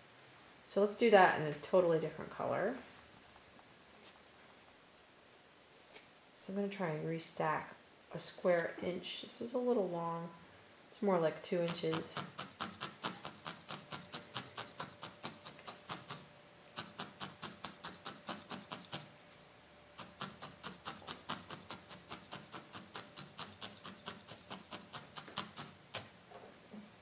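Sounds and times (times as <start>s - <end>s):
felting needle poking wool: 11.5s - 19.1s, 20.0s - 26.2s.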